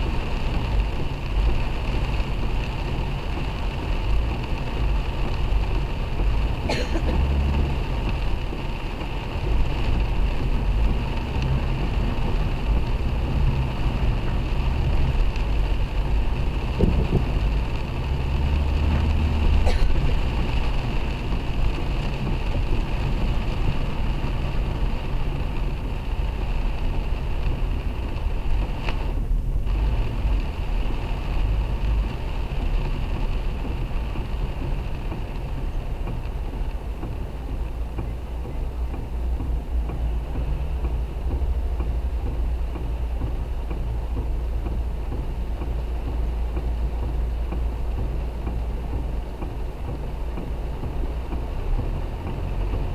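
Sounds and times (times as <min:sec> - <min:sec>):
low rumble of wind gusts: 0:00.0 - 0:52.9
rain on car roof: 0:00.0 - 0:52.9
tyre hiss on wet road: 0:00.0 - 0:52.9.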